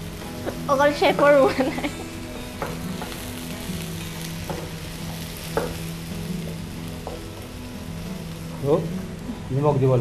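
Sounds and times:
chicken and onions sizzling: 0.0 - 10.0
spatula knocking against pan: 2.6 - 3.2, 4.4 - 4.8, 5.5 - 5.8.

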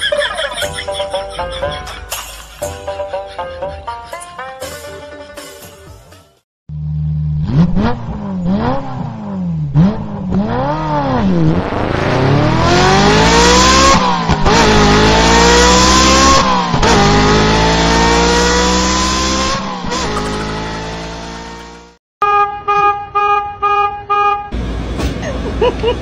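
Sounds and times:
car engine revving and accelerating: 6.8 - 22.0.

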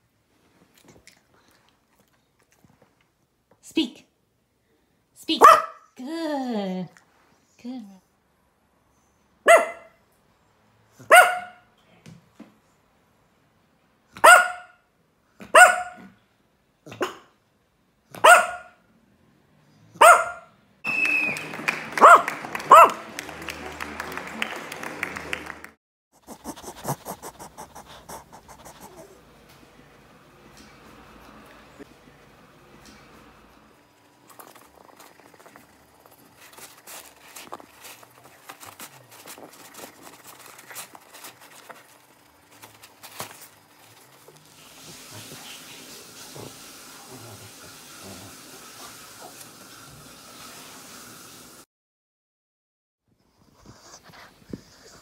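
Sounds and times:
small dog barking high-pitched: 5.3 - 6.0, 9.4 - 10.0, 11.0 - 11.7, 14.2 - 14.8, 15.4 - 16.2, 16.9 - 17.3, 18.1 - 18.8, 20.0 - 20.5, 22.0 - 23.0.

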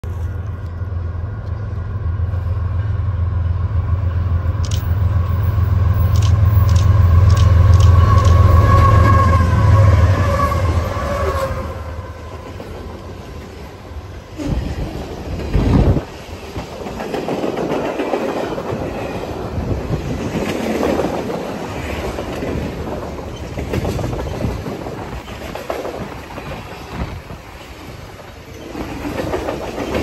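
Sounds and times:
locomotive whine: 0.0 - 16.4
diesel locomotive engine rumble: 0.0 - 30.0
sharp clicks: 4.6 - 5.0, 6.1 - 8.5.

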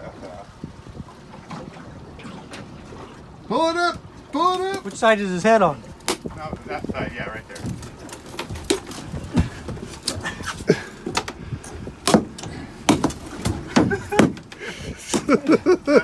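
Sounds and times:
fish thumping on deck: 7.6 - 15.6.

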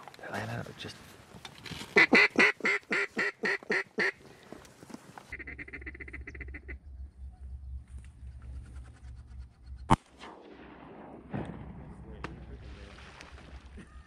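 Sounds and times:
duck feeding chatter: 5.3 - 6.8
mallard quacking: 5.3 - 6.8
low wind rumble: 5.3 - 14.0.

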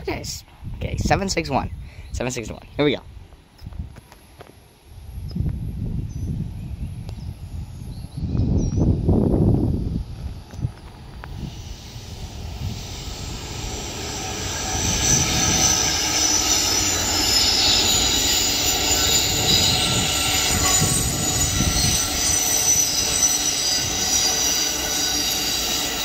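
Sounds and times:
low rumble of train wheels: 2.6 - 26.0
train wheels squealing: 11.3 - 26.0.

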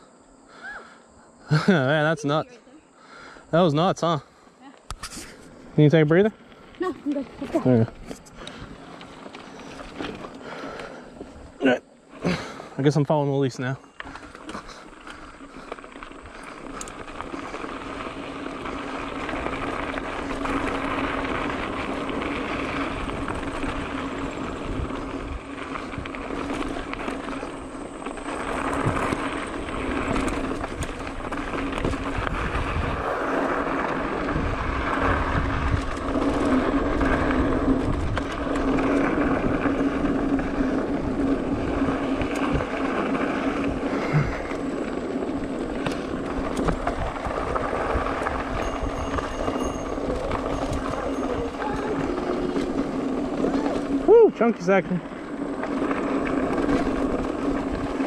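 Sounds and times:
bike tyres rolling on dirt: 0.0 - 58.0
wind buffeting microphone: 16.2 - 54.2.

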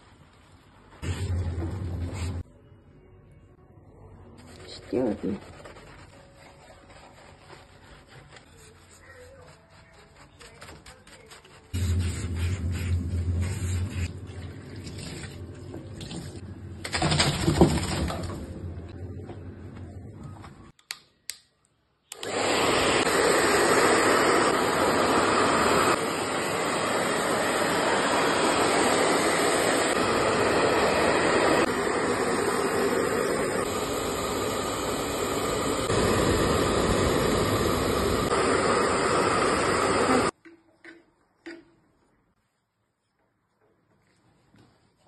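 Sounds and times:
blow dryer blowing air: 22.1 - 40.3.

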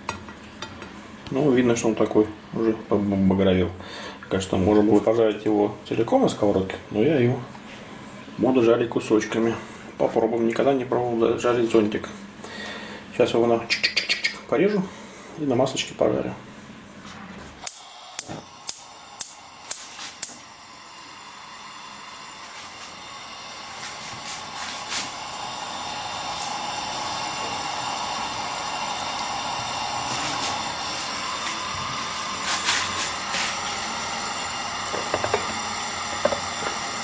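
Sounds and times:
oil sizzling in frying pan: 17.7 - 37.0.

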